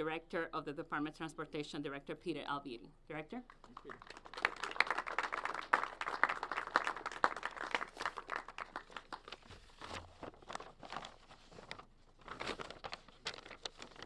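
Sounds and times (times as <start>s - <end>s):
paper rustling: 8.9s - 14.0s.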